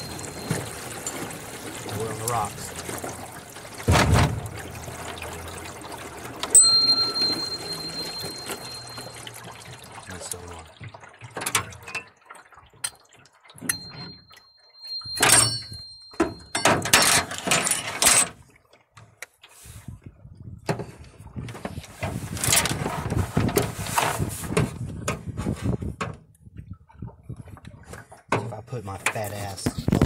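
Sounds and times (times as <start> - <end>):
tuning fork ringing: 0.0 - 1.2, 6.5 - 9.6, 13.7 - 16.9.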